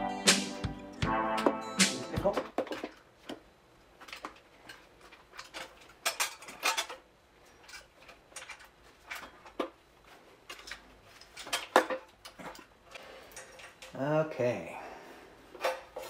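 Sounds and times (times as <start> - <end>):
metal clinks and knocks: 4.0 - 9.8.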